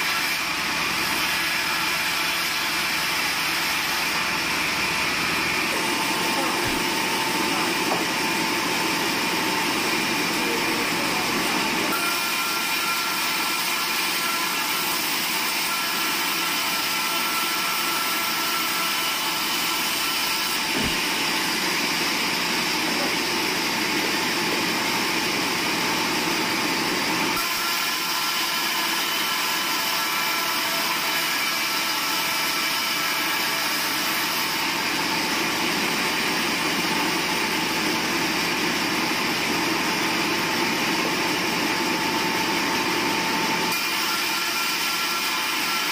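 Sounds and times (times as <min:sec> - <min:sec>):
band saw ripping wood: 0:19.2 - 0:21.7.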